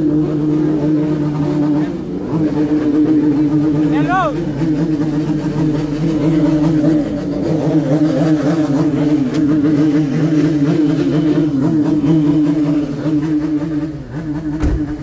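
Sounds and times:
engine revving high: 0.0 - 15.0.

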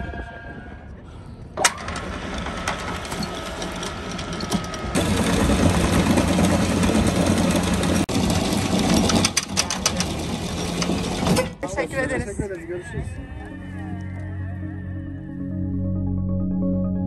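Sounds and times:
boat engine running: 1.8 - 11.5.

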